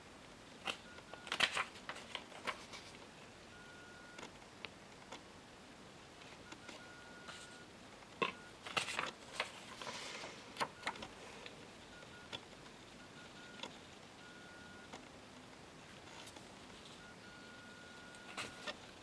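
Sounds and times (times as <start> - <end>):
paper rustling: 0.6 - 3.0, 8.6 - 11.0.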